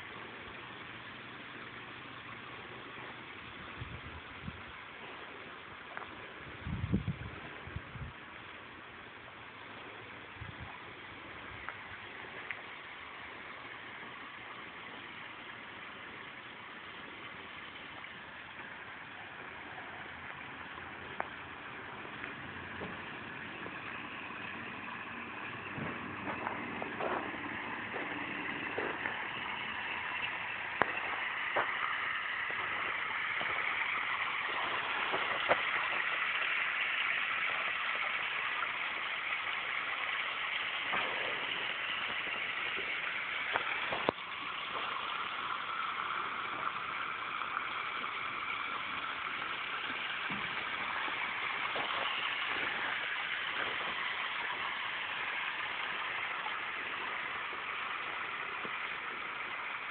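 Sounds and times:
water splashing onto rocks: 8.2s - 59.9s.

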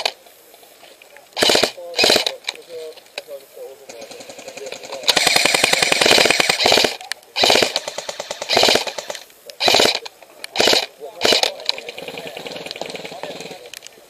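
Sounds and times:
airsoft gun firing bursts: 1.4s - 2.4s, 4.0s - 13.6s.

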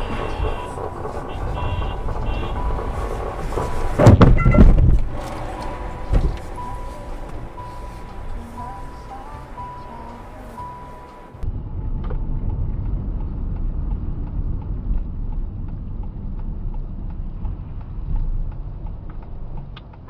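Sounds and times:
car engine and tyres rumbling: 0.0s - 20.0s
music: 6.6s - 11.4s.

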